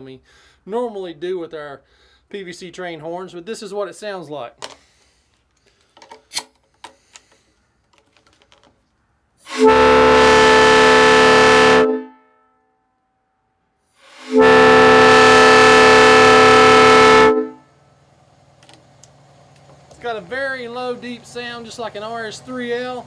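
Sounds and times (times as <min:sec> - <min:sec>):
air horn blasts: 0:09.4 - 0:12.6, 0:14.0 - 0:17.8.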